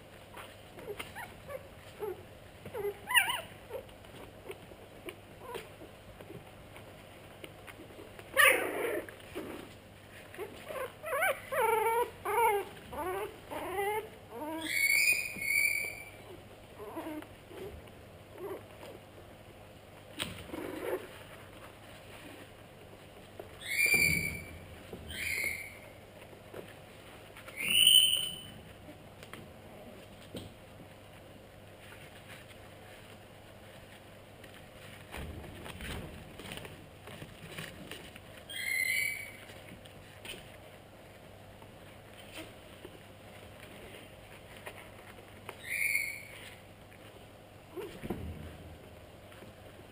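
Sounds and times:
puppies scuffling: 0.0s - 49.9s
puppy squealing: 0.3s - 4.3s, 8.3s - 9.7s, 10.3s - 17.7s, 23.6s - 26.0s, 27.5s - 28.6s, 38.5s - 39.5s, 45.6s - 46.6s
puppies whimpering and yipping: 0.3s - 6.4s, 7.8s - 19.0s, 23.4s - 26.0s, 27.4s - 28.6s, 38.4s - 39.7s.

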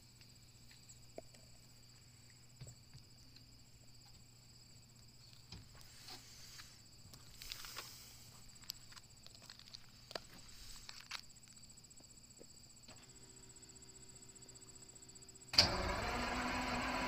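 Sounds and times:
faint steady hum: 0.0s - 17.0s
diesel engine starting and running: 13.1s - 17.0s.

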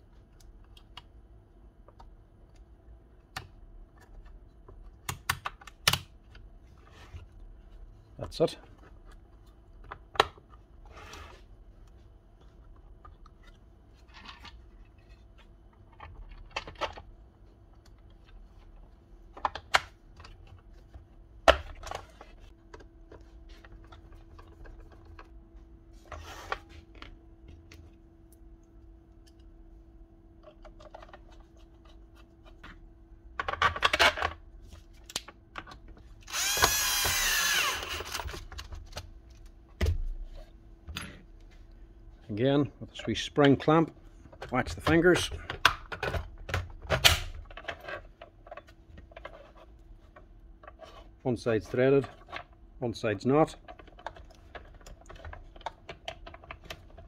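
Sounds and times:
faint steady hum: 0.0s - 57.0s
electric drill running: 36.3s - 38.3s.

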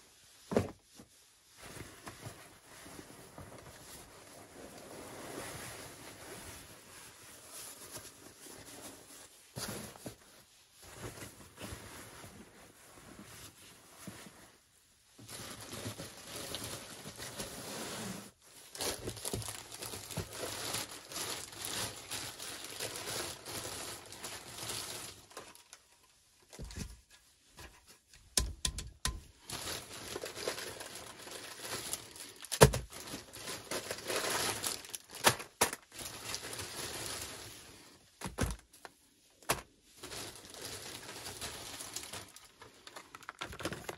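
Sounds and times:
plastic bag rustling: 15.2s - 25.9s, 29.2s - 38.0s, 39.6s - 43.9s.

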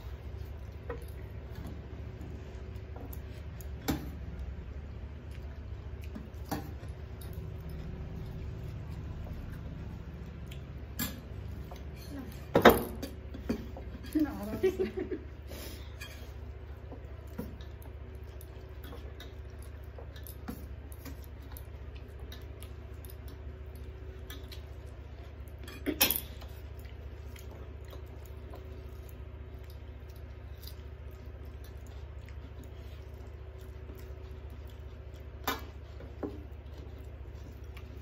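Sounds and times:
chewing: 0.0s - 14.5s, 15.6s - 38.0s
steady low hum: 0.0s - 38.0s
fingers mixing food: 13.1s - 38.0s.

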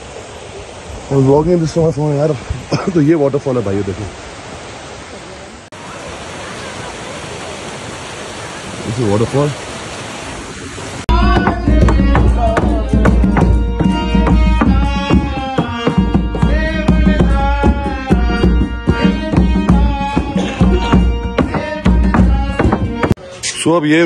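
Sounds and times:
hand drum rhythm: 11.1s - 23.2s
harmonium: 11.1s - 23.2s
person singing: 11.1s - 23.8s.

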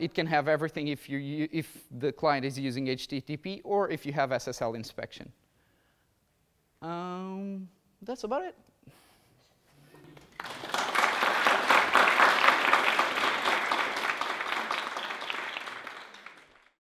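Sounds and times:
audience applauding: 10.0s - 16.8s.

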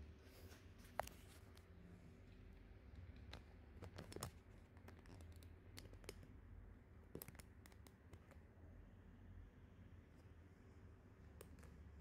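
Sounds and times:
low steady hum: 0.0s - 12.0s
faint clicks and taps: 0.8s - 6.4s, 7.1s - 8.5s, 11.3s - 12.0s.

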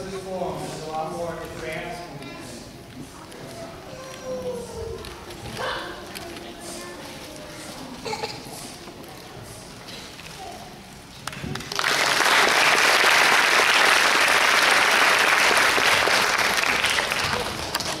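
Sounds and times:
audience applauding: 11.2s - 18.0s.

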